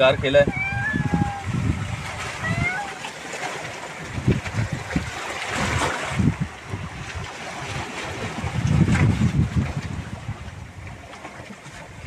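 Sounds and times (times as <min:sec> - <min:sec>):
sea washing: 0:00.0 - 0:12.0
wind buffeting microphone: 0:00.0 - 0:12.0.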